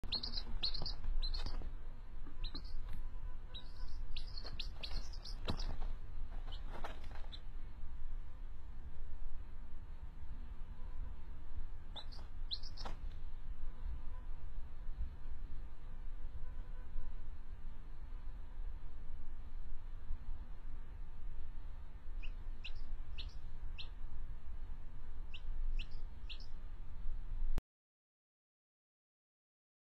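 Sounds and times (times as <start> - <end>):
baby chick peeping: 0.0 - 7.5, 11.9 - 13.1, 22.1 - 24.0, 25.2 - 26.6
low steady rumble: 0.0 - 27.6.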